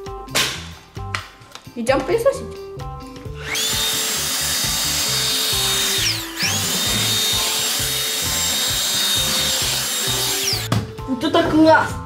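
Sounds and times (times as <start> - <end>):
stick vacuum whining: 3.4 - 10.7.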